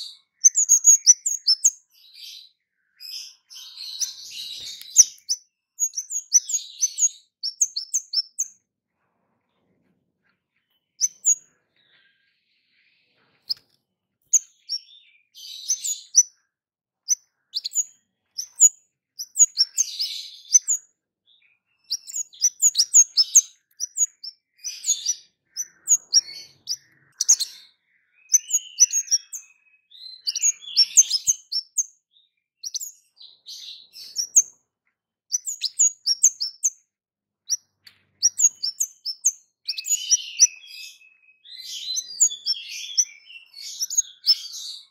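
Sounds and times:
bird twittering: 0:00.0 - 0:08.6, 0:10.9 - 0:12.2, 0:13.0 - 0:34.6, 0:35.3 - 0:36.8, 0:37.4 - 0:44.9
songbird chirping: 0:00.0 - 0:44.9.

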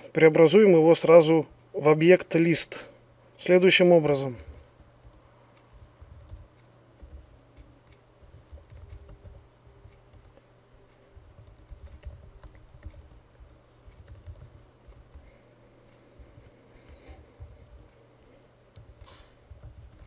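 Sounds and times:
typing on computer keyboard: 0:04.8 - 0:10.4, 0:11.2 - 0:15.4, 0:16.2 - 0:17.9, 0:18.7 - 0:20.0.

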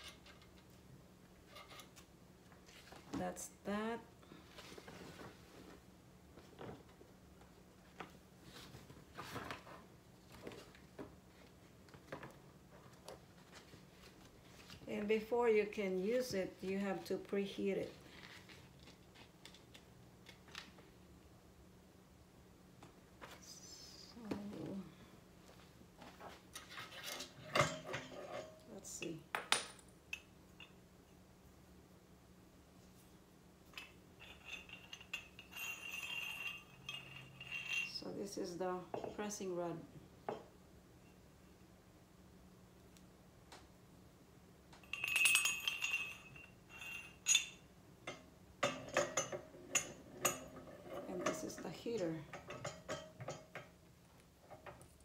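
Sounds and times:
low steady hum: 0:00.0 - 0:55.0
objects being handled: 0:17.7 - 0:21.0
light metal clicks and clinks: 0:33.7 - 0:38.1, 0:44.8 - 0:53.8.

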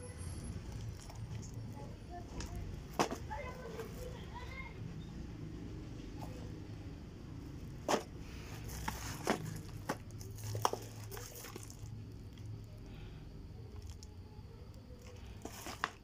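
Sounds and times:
low steady hum: 0:00.0 - 0:16.0
plastic film crinkling: 0:08.6 - 0:11.9.

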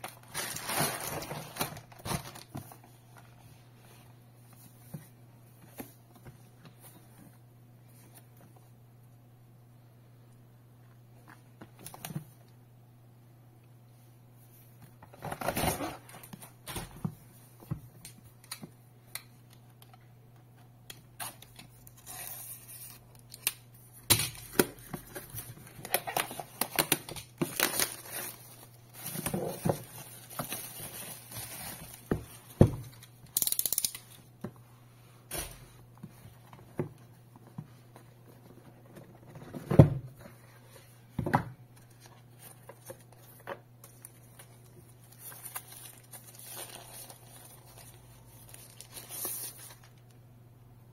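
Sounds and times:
plastic wrap crinkling and tearing: 0:00.0 - 0:02.8, 0:24.4 - 0:32.1, 0:42.4 - 0:50.0.

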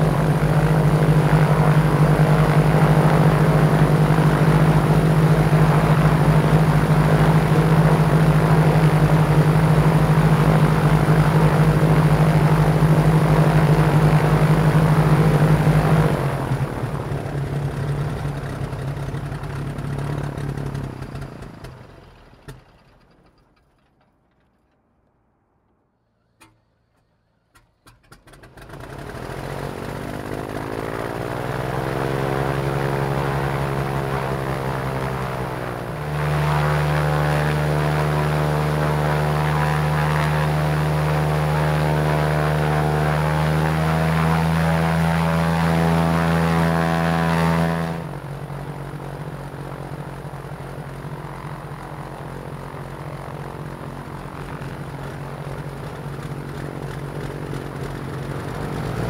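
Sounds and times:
aircraft piston engine and propeller: 0:00.0 - 0:24.1, 0:26.1 - 0:59.0.

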